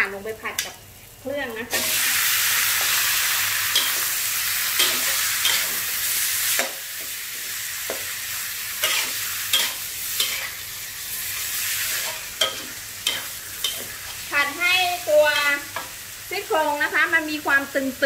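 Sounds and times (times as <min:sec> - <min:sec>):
meat sizzling in hot oil: 0:00.0 - 0:18.0
metal spatula scraping a wok: 0:04.7 - 0:06.8, 0:08.8 - 0:10.6, 0:11.4 - 0:14.2.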